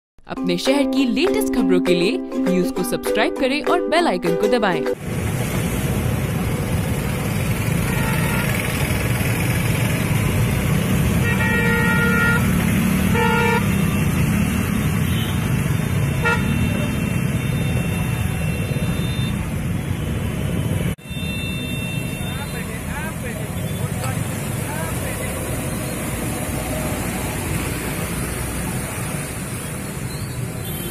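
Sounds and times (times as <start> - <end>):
motorcycles and scooters passing: 5.0 - 30.9
vehicle horn honking: 7.8 - 8.8, 11.2 - 14.2, 15.0 - 19.4, 21.0 - 22.8, 30.6 - 30.9.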